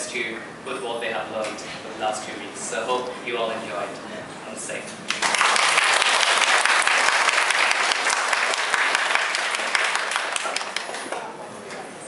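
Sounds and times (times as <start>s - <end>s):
audience applauding: 5.1s - 11.3s.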